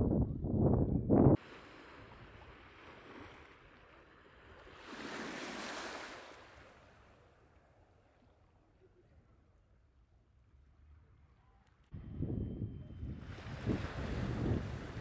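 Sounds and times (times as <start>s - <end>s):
wind rumble on microphone: 0.0s - 1.4s, 11.9s - 15.0s
small wave washing over stones: 1.4s - 7.0s.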